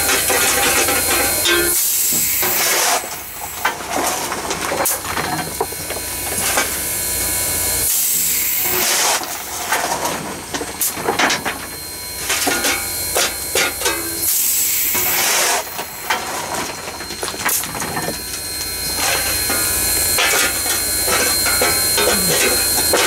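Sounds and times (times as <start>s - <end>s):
steam hissing: 0.0s - 4.2s, 4.9s - 10.1s, 10.8s - 23.0s
shovel scraping coal: 0.0s - 6.9s, 7.9s - 23.0s
metallic clanks: 15.0s - 23.0s.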